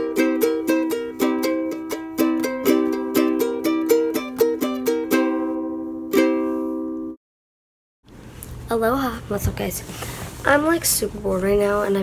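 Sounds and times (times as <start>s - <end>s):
plucked string instrument music: 0.0s - 7.2s.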